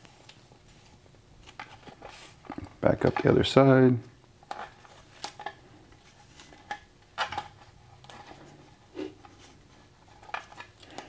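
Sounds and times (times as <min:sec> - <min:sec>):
tape crinkling and tapping: 0:00.0 - 0:03.5, 0:04.3 - 0:08.5.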